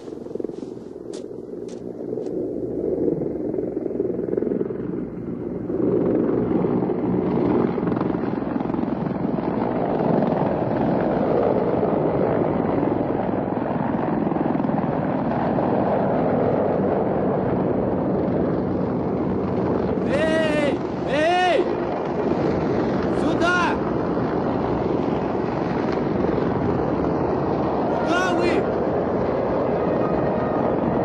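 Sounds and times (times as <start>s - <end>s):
helicopters flying over: 0.0s - 31.0s.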